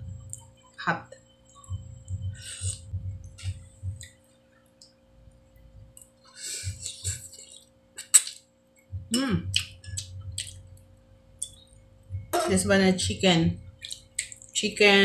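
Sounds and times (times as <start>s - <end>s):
faint steady hum: 0.0s - 15.0s
chewing and mouth noises: 1.5s - 5.0s, 5.9s - 8.9s, 9.5s - 11.7s, 13.6s - 14.6s.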